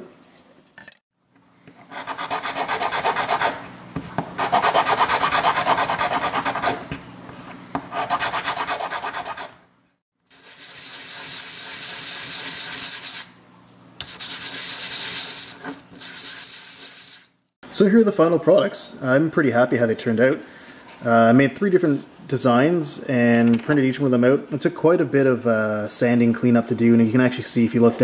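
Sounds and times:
metal file rasping on plastic: 1.9 - 3.6, 4.4 - 6.8, 7.9 - 9.6
plastic rubbed on sandpaper: 14.0 - 17.3.

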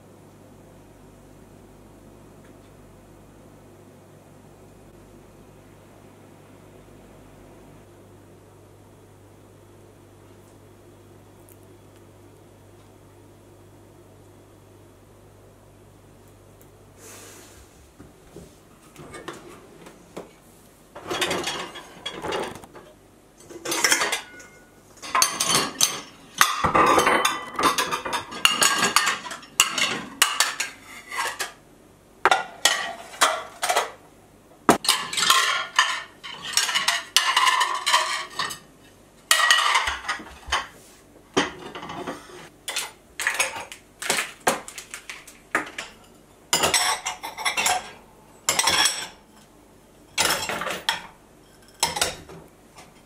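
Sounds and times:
ceramic plates clinking: 23.6 - 31.6, 34.8 - 38.7, 39.3 - 40.7, 45.8 - 49.2.

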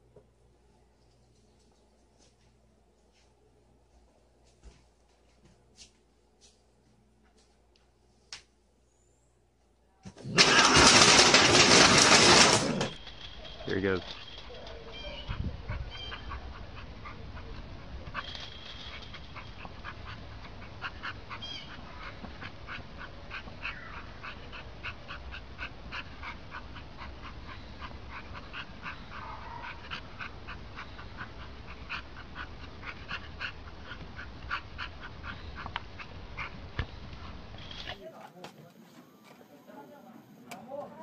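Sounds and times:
canid whining: 10.1 - 38.0.

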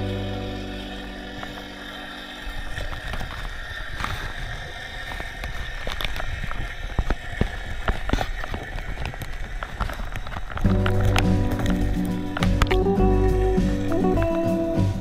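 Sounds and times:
sharp underwater clicks and knocks: 2.8 - 13.0.

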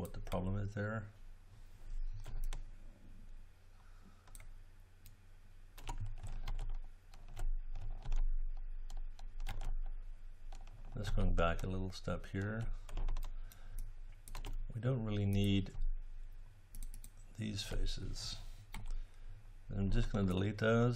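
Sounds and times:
low steady hum: 0.0 - 20.9
keyboard keys and mouse clicking: 2.1 - 2.7, 4.2 - 5.2, 5.8 - 9.9, 10.5 - 11.8, 12.4 - 14.6, 16.7 - 17.2.

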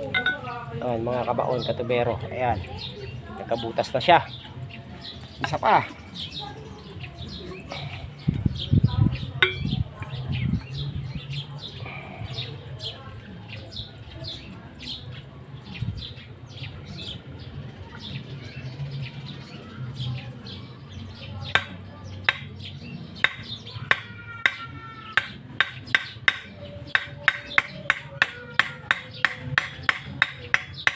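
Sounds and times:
small birds chirping: 0.0 - 30.9
pipe ringing: 0.1 - 0.5, 9.4 - 9.8
hammer striking steel pipe: 9.4 - 9.8, 23.2 - 24.6, 25.2 - 30.9.

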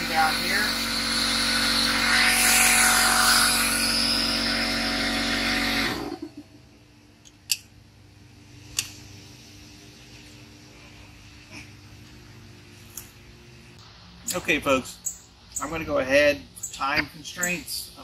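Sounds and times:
electric power tool whining: 0.0 - 6.3.

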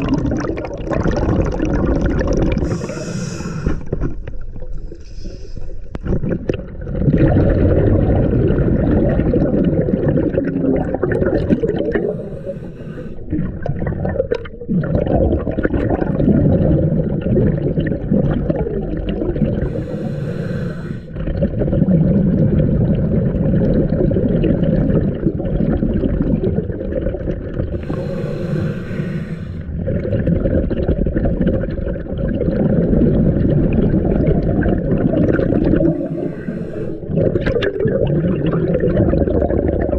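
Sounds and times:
hissing inhale through regulator: 2.6 - 6.0, 11.9 - 13.3, 19.6 - 21.2, 27.7 - 29.8, 35.8 - 37.1.

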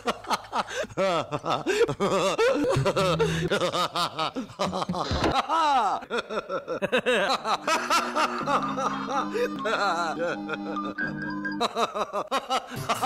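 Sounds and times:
man's cartoon laugh: 0.0 - 11.0, 11.6 - 13.0
music with held notes: 2.6 - 3.7, 7.4 - 13.0.

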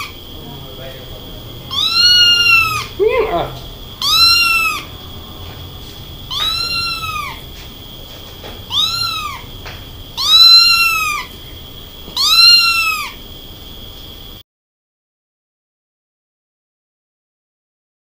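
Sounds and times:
kitten meowing: 1.6 - 4.9, 6.2 - 7.6, 8.7 - 11.4, 12.1 - 13.2.

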